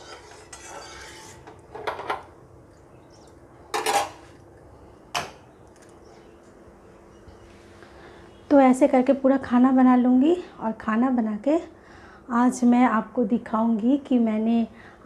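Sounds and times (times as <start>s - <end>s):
metal spatula scraping in pan: 0.0s - 1.6s
metal clanks of spatula and pan: 0.0s - 2.3s, 3.7s - 4.2s.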